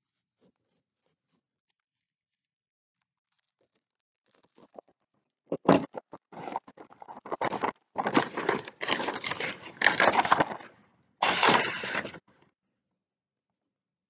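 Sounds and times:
paper rustling and crinkling: 5.6s - 12.2s.

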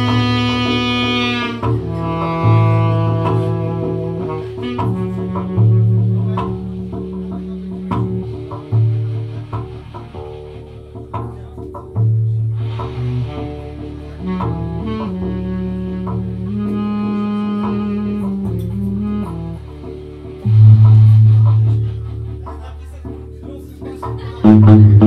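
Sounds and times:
saxophone: 0.0s - 10.8s, 12.6s - 22.5s, 24.4s - 25.0s
bass guitar low notes: 0.0s - 25.0s
live band music: 0.0s - 25.0s.

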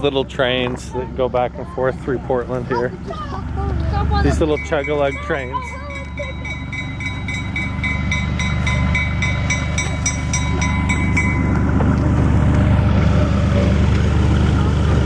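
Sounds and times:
diesel locomotive engine rumble: 0.0s - 15.0s
locomotive bell ringing: 2.9s - 14.6s.

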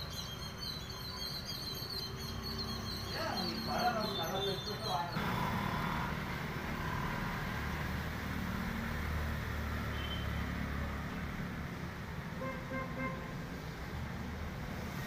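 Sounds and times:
passing motor vehicle rumble: 2.0s - 15.0s.

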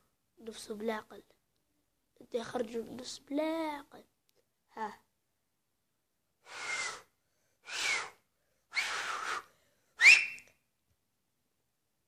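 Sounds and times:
finger whistling: 6.5s - 7.1s, 7.7s - 10.6s.

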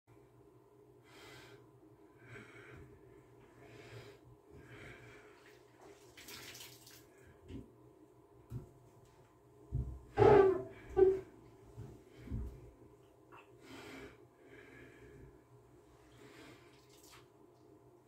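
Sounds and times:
faint steady hum: 0.1s - 6.3s, 6.9s - 18.0s
faint breathing: 1.0s - 5.5s, 13.4s - 16.8s
bath water swishing: 5.4s - 7.2s, 16.7s - 17.3s.

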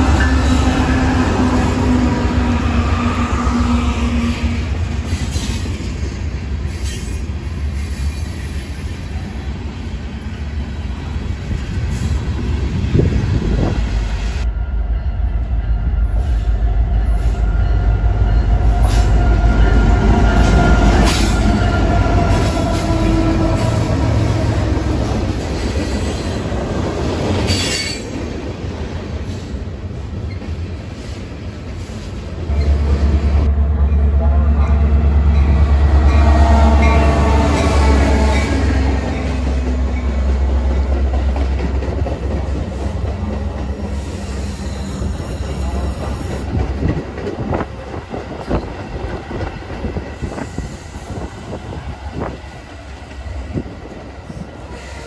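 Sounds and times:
diesel locomotive engines rumbling: 0.0s - 55.0s
railcars rumbling over rails: 0.0s - 55.0s
train wheels squealing on rails: 2.6s - 5.9s, 6.6s - 9.4s, 13.6s - 24.8s, 25.4s - 26.5s, 27.4s - 28.2s, 30.2s - 33.1s, 42.7s - 47.7s, 49.4s - 53.4s, 54.3s - 55.0s.

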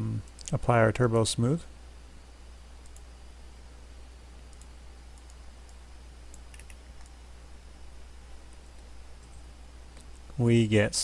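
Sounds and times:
steady low hum: 0.0s - 11.0s
mouse and keyboard clicks: 4.5s - 7.2s.

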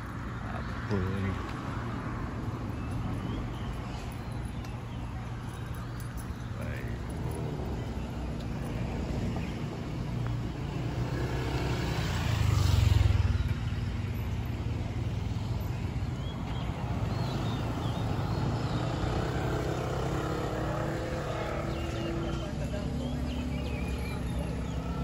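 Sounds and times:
low traffic rumble: 0.0s - 25.0s
vehicle passing close by: 6.6s - 25.0s.

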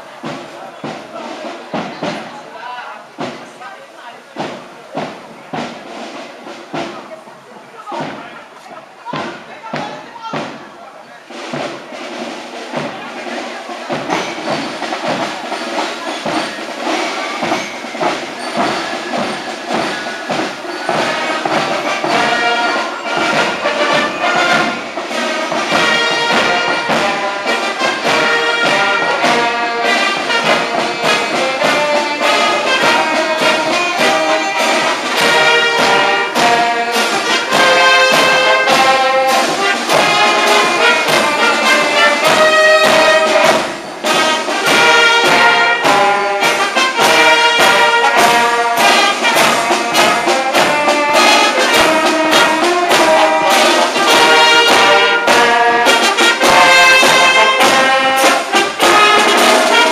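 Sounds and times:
marching brass band: 0.0s - 59.9s.

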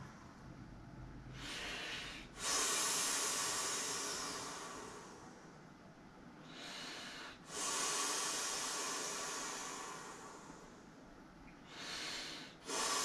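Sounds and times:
person inhaling: 1.4s - 5.4s, 6.4s - 10.9s, 11.6s - 13.0s.

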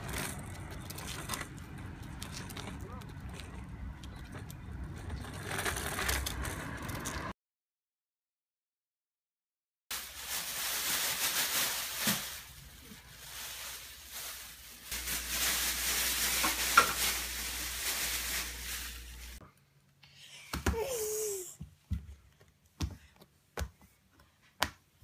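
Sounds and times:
plastic bags rustling and crinkling: 0.0s - 7.0s, 9.9s - 19.4s.

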